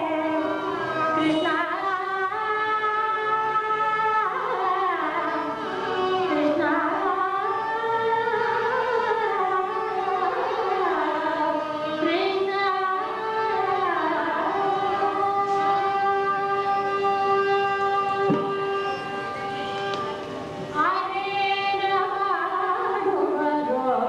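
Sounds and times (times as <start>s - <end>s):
violin: 0.0s - 24.0s
woman singing ornamented phrases: 20.8s - 24.0s.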